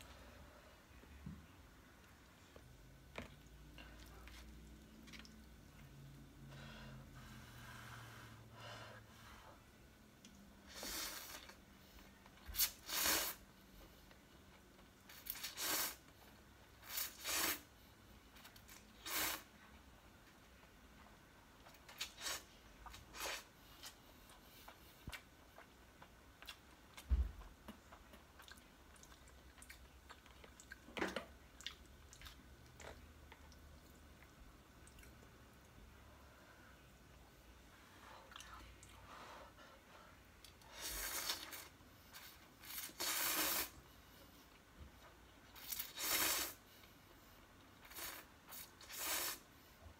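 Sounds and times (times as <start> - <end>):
chewing: 23.8 - 30.9, 31.6 - 35.3
person slurping noodles: 40.8 - 43.8.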